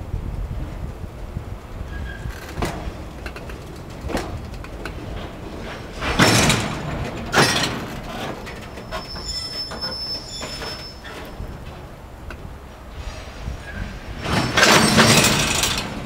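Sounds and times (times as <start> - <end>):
train wagons rolling on track: 0.0 - 16.0
high wheel squeal: 1.9 - 2.5, 7.4 - 11.7, 13.0 - 15.8
loud clanks: 1.9 - 16.0.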